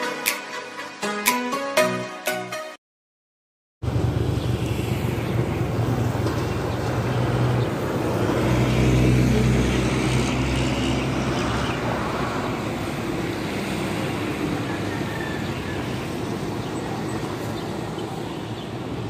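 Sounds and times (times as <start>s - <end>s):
large vehicle engine rumble: 3.8s - 18.0s
highway traffic engines: 3.8s - 19.0s.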